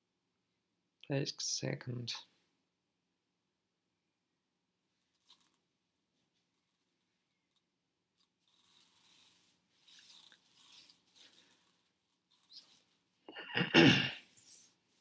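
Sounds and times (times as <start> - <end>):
soft faint rustling: 4.9 - 13.3, 14.2 - 15.0.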